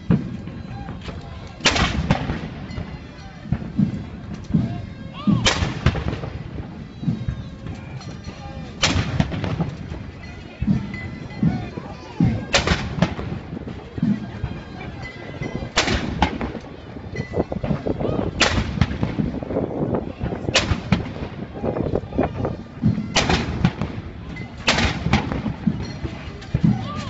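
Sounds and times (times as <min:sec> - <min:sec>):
artillery guns firing: 0:01.6 - 0:02.8, 0:05.3 - 0:06.4, 0:08.8 - 0:10.0, 0:12.5 - 0:13.4, 0:15.8 - 0:16.6, 0:18.4 - 0:19.4, 0:20.4 - 0:21.3, 0:23.0 - 0:26.8.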